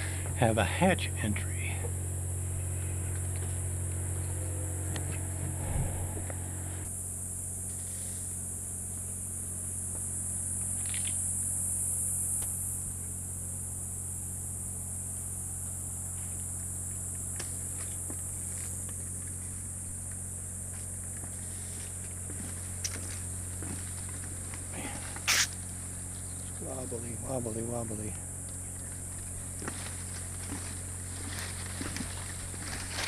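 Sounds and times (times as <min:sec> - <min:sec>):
low steady hum: 0:00.0 - 0:33.0
high-pitched insect chorus: 0:06.9 - 0:33.0.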